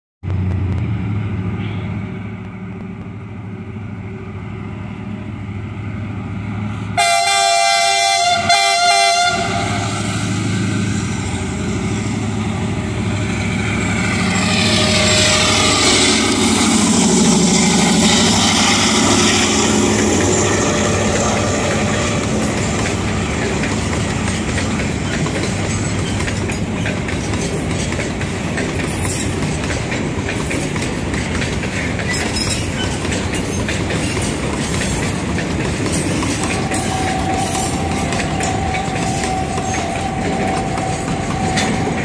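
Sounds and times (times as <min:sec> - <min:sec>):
diesel locomotive rumbling: 0:00.2 - 0:42.0
train horn: 0:07.0 - 0:10.1, 0:14.4 - 0:16.8, 0:20.4 - 0:22.6, 0:36.6 - 0:42.0.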